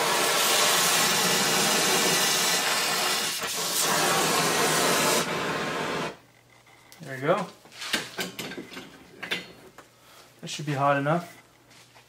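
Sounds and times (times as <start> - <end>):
torch flame hissing: 0.0 - 6.2.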